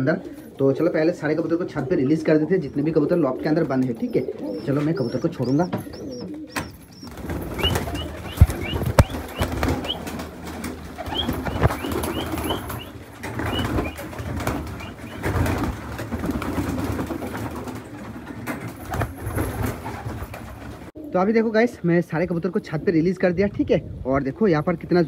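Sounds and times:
pigeons cooing: 0:00.0 - 0:21.3
sharp knocks: 0:05.6 - 0:07.0.

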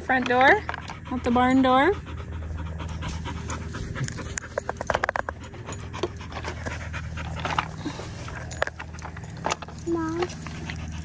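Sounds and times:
dog panting: 0:00.2 - 0:11.0
plastic toys clattering: 0:04.0 - 0:06.2, 0:07.3 - 0:11.0.

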